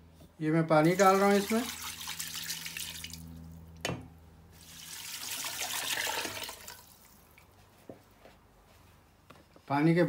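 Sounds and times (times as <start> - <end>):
water pouring into metal pot: 0.9 - 3.4, 4.6 - 7.2.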